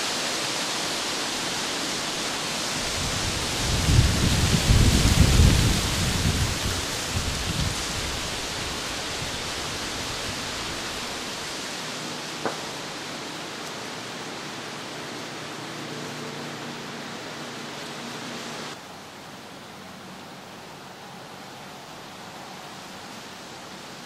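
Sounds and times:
steady outdoor hiss: 0.0 - 24.0.

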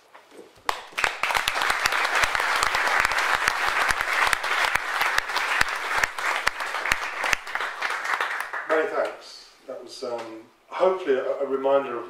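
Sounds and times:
audience applauding: 0.7 - 9.1.

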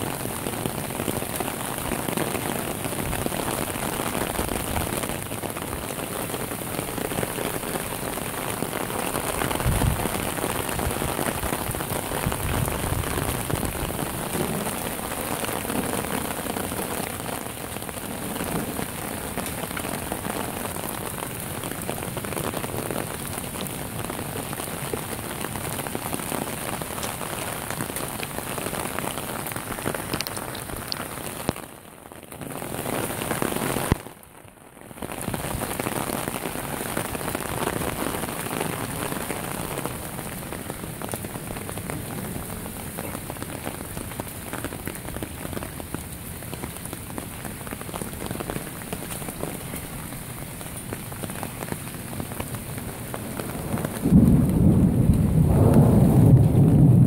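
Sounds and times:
heavy rain: 0.0 - 57.0.

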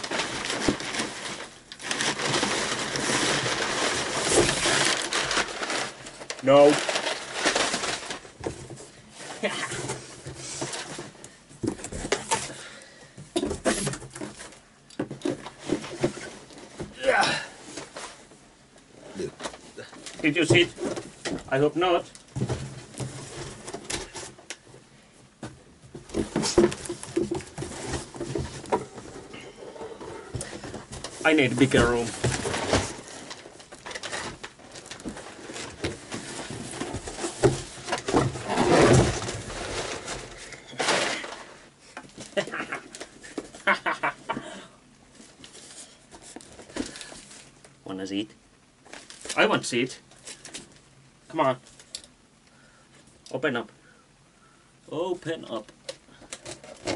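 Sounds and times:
cardboard flaps rustling: 0.0 - 18.4, 19.4 - 24.8, 25.4 - 43.8, 45.1 - 47.6
knocks and scrapes: 25.4 - 42.1.

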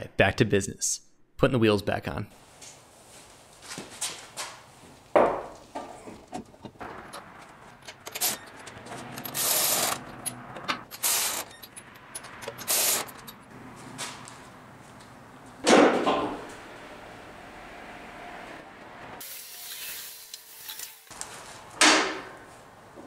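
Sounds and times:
power tool spinning lug nuts: 7.9 - 13.4.

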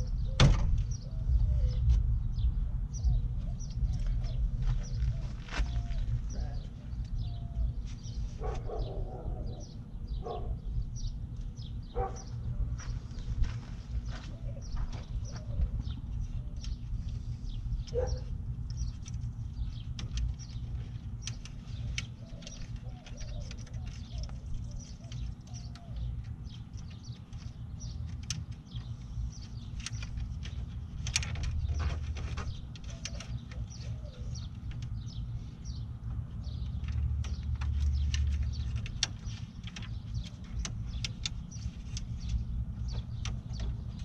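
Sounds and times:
steady low rumble: 0.0 - 44.0.

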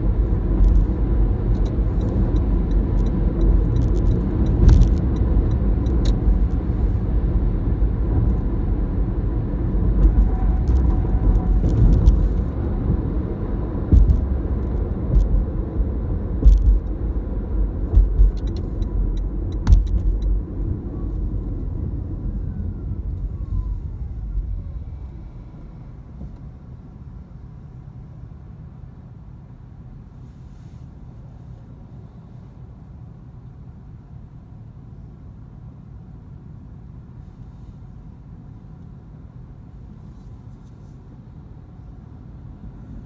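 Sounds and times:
car falling whine: 0.0 - 27.1
road and tyre noise: 0.0 - 43.0
sharp thumps: 13.9 - 15.5, 16.4 - 16.9, 17.8 - 18.7, 19.6 - 20.2.

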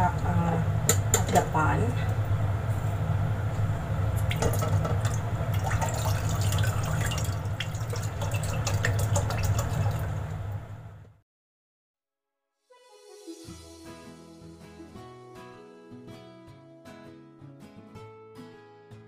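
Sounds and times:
steady low hum: 0.0 - 11.0
liquid pouring into saucepan: 4.2 - 10.5.

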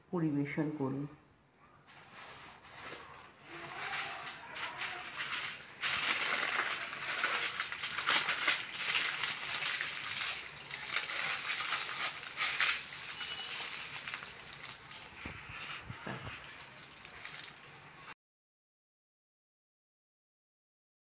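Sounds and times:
aluminium foil crinkling: 1.9 - 18.1.

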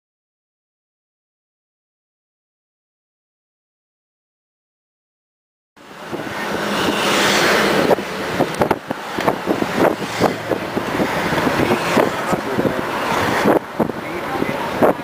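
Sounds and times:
road and traffic noise: 5.8 - 15.0.

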